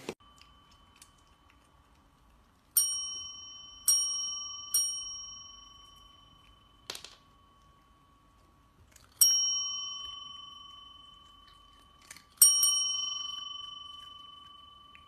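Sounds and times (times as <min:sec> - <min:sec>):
service bell dinging: 0:02.8 - 0:08.4, 0:09.2 - 0:15.0.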